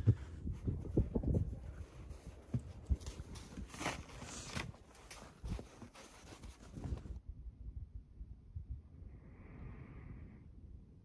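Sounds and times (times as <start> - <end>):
puppy thumping through snow: 0.0 - 7.2.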